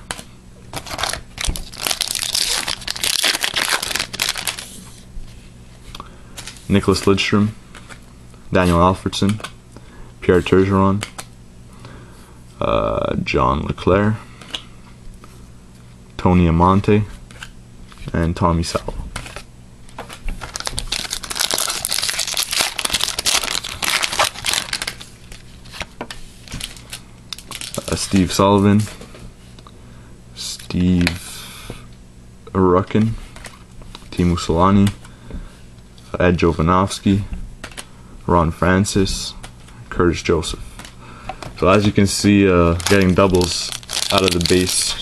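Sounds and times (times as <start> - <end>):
foil wrapper tearing: 0.7 - 4.9, 20.4 - 28.1, 42.7 - 45.0
foil wrapper crinkling: 0.7 - 5.0, 20.1 - 28.4, 41.7 - 45.0.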